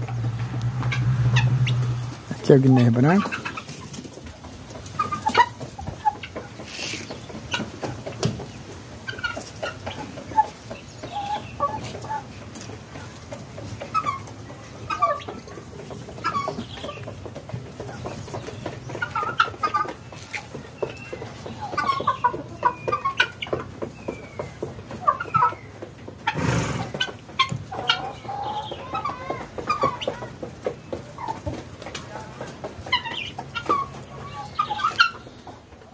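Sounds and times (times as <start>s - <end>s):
fowl clucking: 0.0s - 35.9s.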